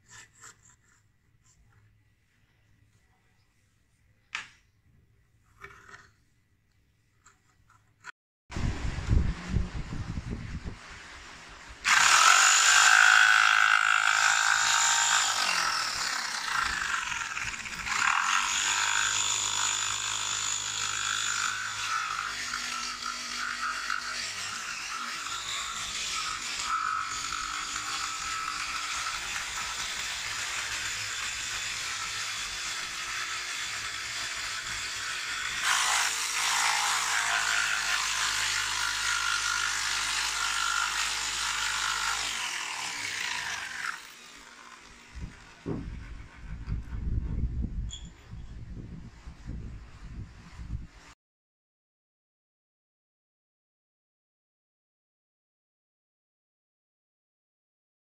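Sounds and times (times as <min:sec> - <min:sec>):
jigsaw cutting wood: 0:11.8 - 0:46.3.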